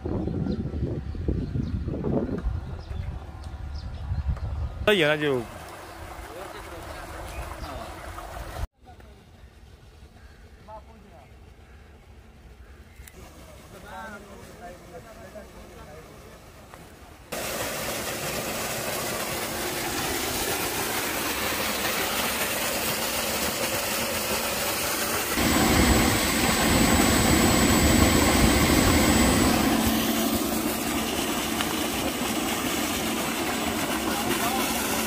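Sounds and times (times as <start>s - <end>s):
water gushing from pipe: 5.2s - 8.7s, 17.3s - 35.0s
electric pump motor hum: 17.3s - 35.0s
thin high whine: 24.5s - 35.0s.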